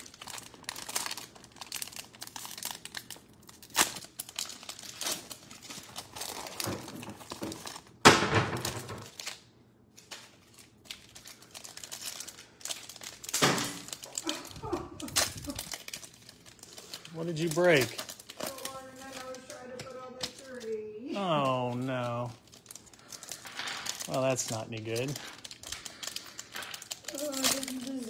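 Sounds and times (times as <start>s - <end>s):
foil wrappers crinkling and tearing: 0.0s - 28.0s.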